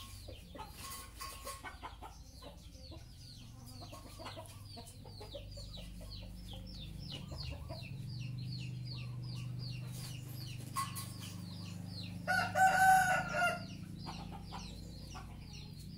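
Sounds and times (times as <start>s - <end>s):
rooster crowing: 12.2s - 13.8s.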